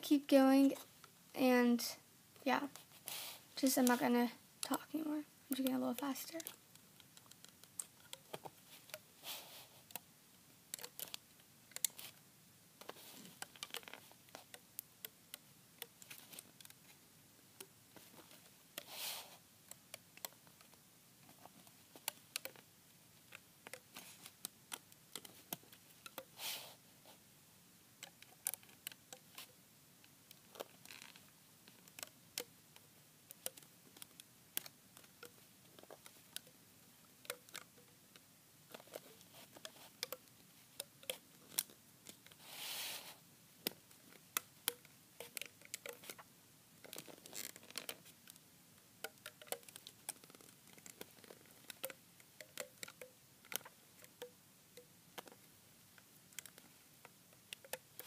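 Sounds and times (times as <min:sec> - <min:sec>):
plastic hook clicking rubber bands: 0:05.5 - 0:09.1, 0:10.7 - 0:12.2, 0:12.8 - 0:16.9, 0:17.6 - 0:26.4, 0:28.0 - 0:29.6, 0:30.3 - 0:42.4, 0:43.6 - 0:48.4, 0:49.0 - 0:58.0.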